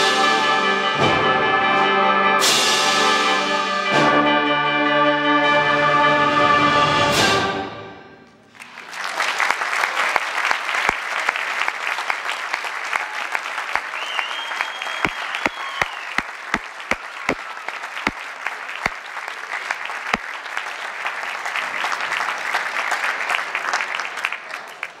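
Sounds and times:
audience applauding: 8.5 - 25.0.

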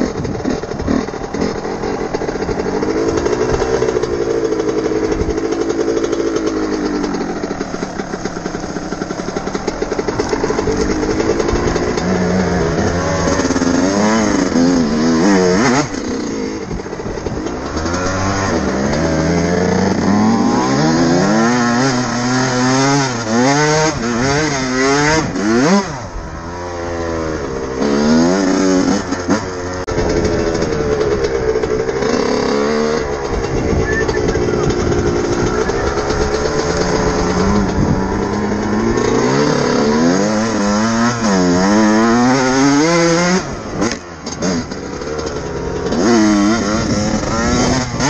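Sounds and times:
two-stroke motorcycle engine revving: 0.0 - 48.0.

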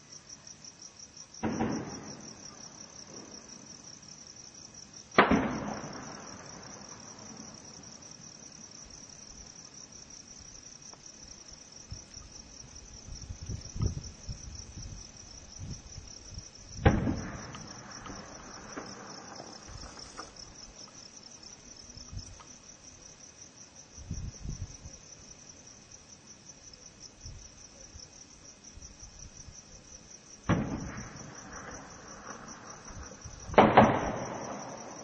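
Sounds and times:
crickets chirping: 0.0 - 35.0
faint gunfire pops: 1.4 - 2.3, 5.2 - 6.4, 16.8 - 20.3, 30.5 - 31.2, 33.5 - 35.0
gunshots echoing: 1.4 - 2.3, 5.2 - 6.6, 30.5 - 31.5, 33.5 - 35.0.

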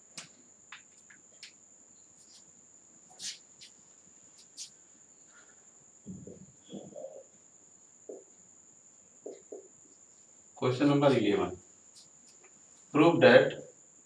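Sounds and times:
faint high-pitched whine: 0.0 - 14.0
marker writing on whiteboard: 9.2 - 9.7.

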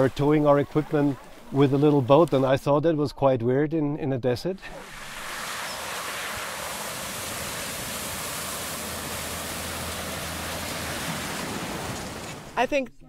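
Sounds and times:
water splashing: 0.0 - 2.6, 4.6 - 12.6
low engine hum: 5.4 - 12.6.

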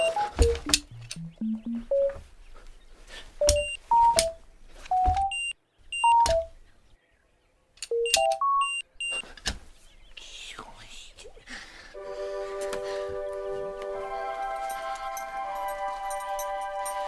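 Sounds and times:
ankle bracelet electronic beeping: 0.0 - 2.2, 3.4 - 6.5, 7.9 - 9.2.

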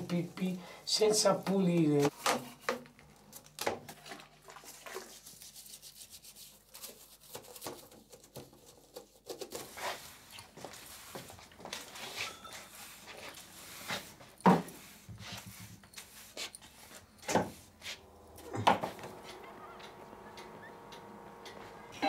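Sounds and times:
faint brushing and rubbing: 4.6 - 7.4, 8.6 - 19.5
broom sweeping floor: 9.5 - 20.3.

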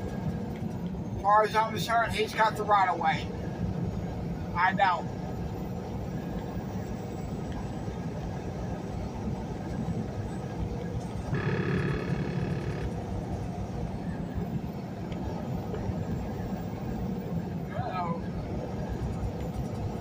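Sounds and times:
truck engine and tyres rumbling: 0.0 - 20.0
brief steady tone: 11.3 - 12.9.

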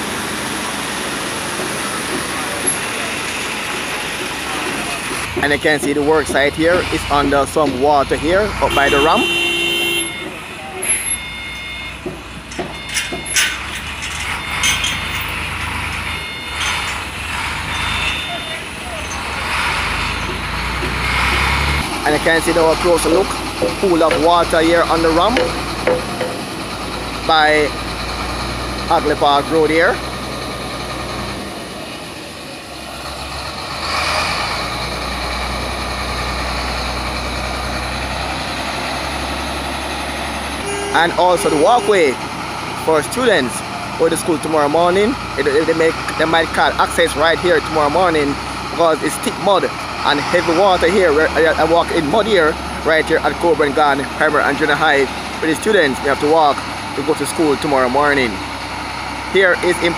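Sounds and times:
diesel truck engine idling: 0.0 - 59.9
rumble of traffic and machinery: 0.0 - 59.9
sharp knocks and clatters: 12.0 - 17.6, 20.0 - 22.0, 23.3 - 27.2.

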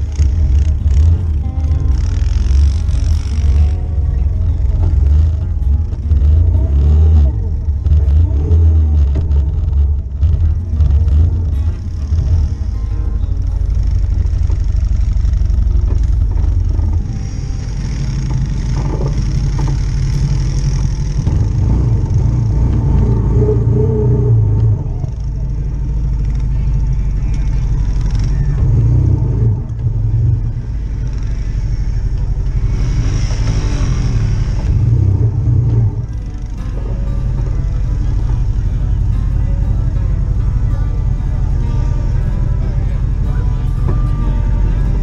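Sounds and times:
atv engine running: 0.0 - 45.0.

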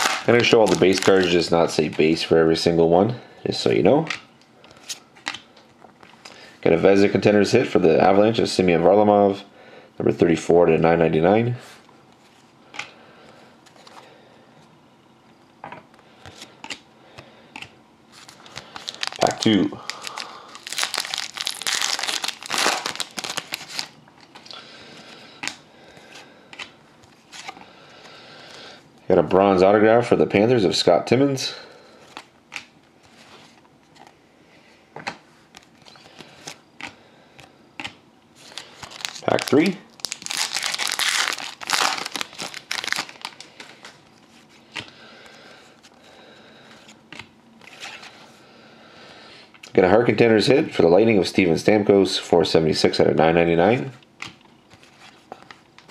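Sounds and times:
foil wrapper tearing and crinkling: 0.0 - 1.4, 18.2 - 24.0, 38.4 - 43.7
cards rustling and clicking: 0.0 - 2.1, 16.2 - 27.7, 35.0 - 44.9.

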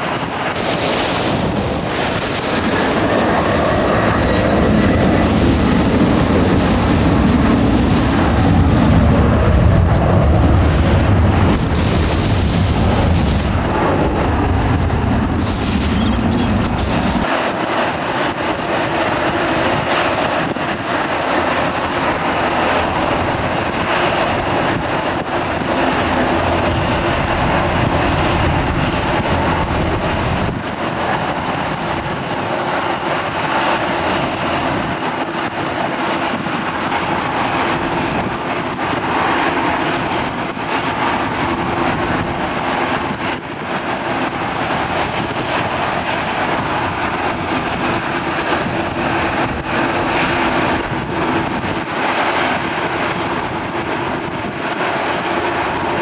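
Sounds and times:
deep rumble: 0.0 - 35.2
jet engines whining: 0.0 - 56.0.

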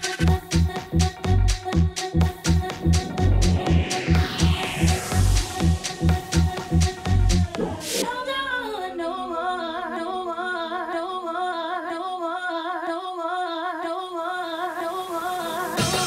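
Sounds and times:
electronic dance music: 0.0 - 10.9, 14.7 - 16.0
held vocal note with vibrato: 2.3 - 12.8.

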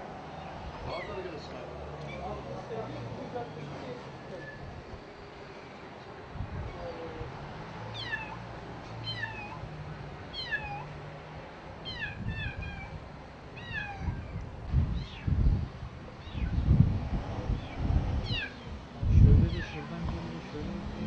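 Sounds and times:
kitten mewing: 10.3 - 10.9, 13.6 - 14.4, 18.2 - 18.6.

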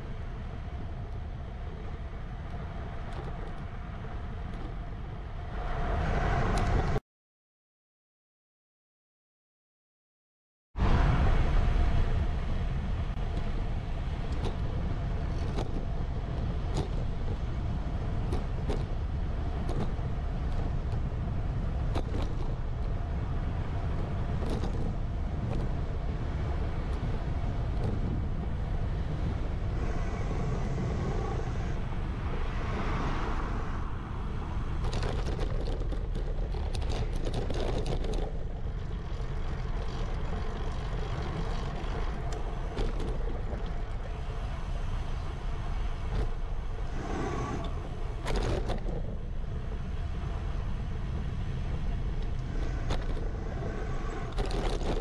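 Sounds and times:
road traffic: 0.0 - 7.0, 10.8 - 55.0
steady low rumble: 0.0 - 7.0, 10.8 - 55.0
loud vehicle passing: 29.5 - 35.0, 46.8 - 48.2.

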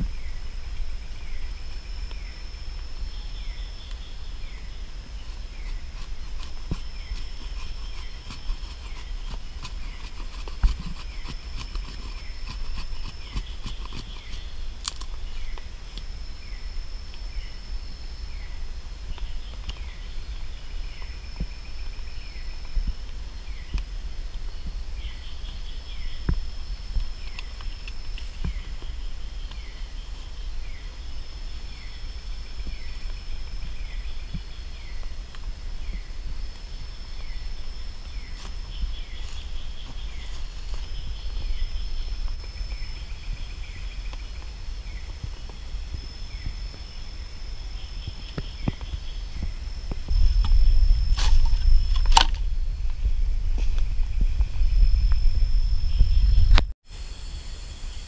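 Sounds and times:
dry grass rustling: 0.0 - 16.2, 37.2 - 44.6
high insect drone: 0.0 - 58.0.

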